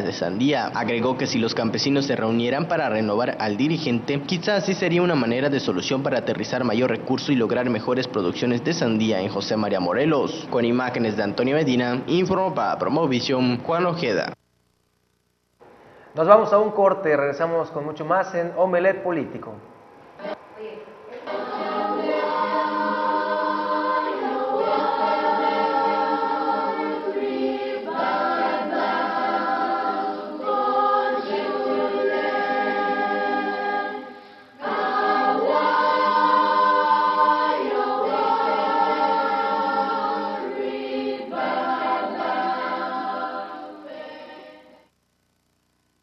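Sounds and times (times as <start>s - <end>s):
choir singing held chords: 19.6s - 44.9s.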